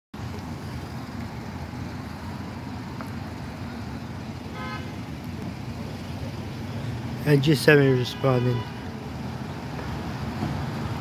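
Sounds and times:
street traffic rumble: 0:00.2 - 0:11.0
car horn toot: 0:04.5 - 0:05.0, 0:07.7 - 0:08.9.

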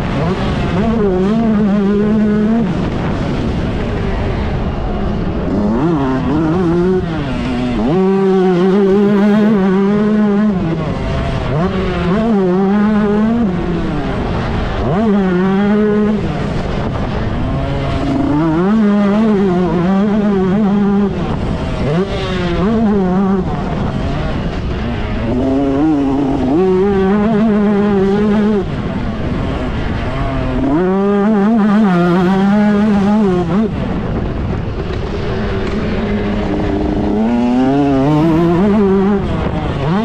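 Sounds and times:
motocross bike engine revving: 0:00.0 - 0:40.0.

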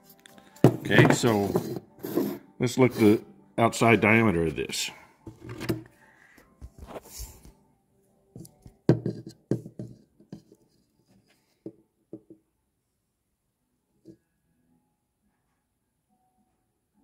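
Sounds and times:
plastic knocks on wooden table: 0:08.9 - 0:10.0.

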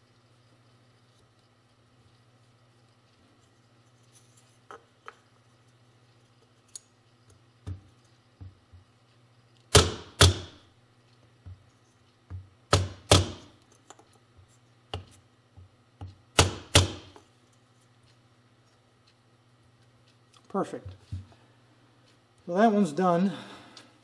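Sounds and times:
mallet striking wood block: 0:12.7 - 0:13.4, 0:16.4 - 0:17.2.

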